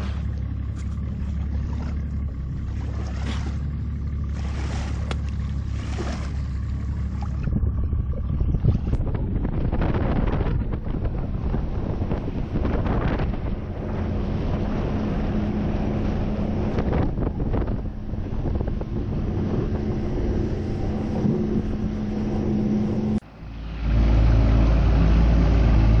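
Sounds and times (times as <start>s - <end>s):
outboard motor droning: 0.0s - 26.0s
wind buffeting microphone: 4.3s - 23.2s.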